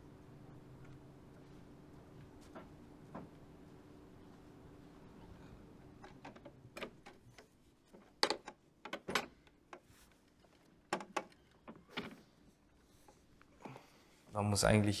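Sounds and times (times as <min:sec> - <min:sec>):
faint clicks and knocks: 0:05.8 - 0:13.8.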